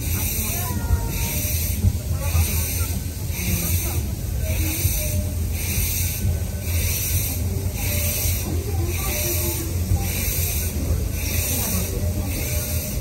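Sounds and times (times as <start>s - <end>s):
steam locomotive chuffing: 0.0s - 13.0s
train rolling on track: 0.0s - 13.0s.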